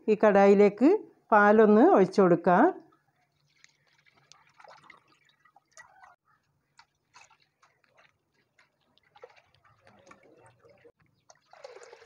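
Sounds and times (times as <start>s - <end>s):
small drips: 2.9s - 12.0s
milk pouring into a pan: 11.3s - 12.0s.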